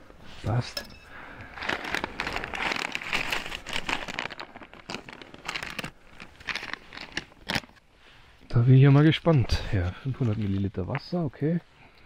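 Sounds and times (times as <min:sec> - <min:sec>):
plastic packet crinkling: 0:01.4 - 0:07.9.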